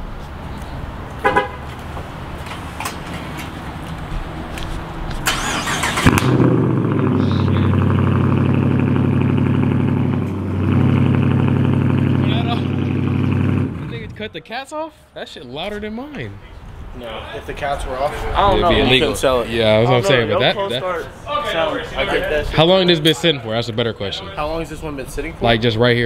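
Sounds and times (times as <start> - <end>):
car engine cranking: 5.1 - 14.2
car engine fast idle: 5.3 - 7.1.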